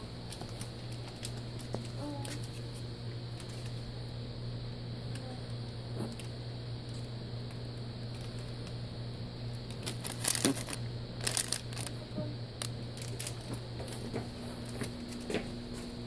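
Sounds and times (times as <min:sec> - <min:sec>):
crinkling handling noises: 0:00.0 - 0:04.0, 0:05.1 - 0:16.0
low electrical hum: 0:00.0 - 0:16.0.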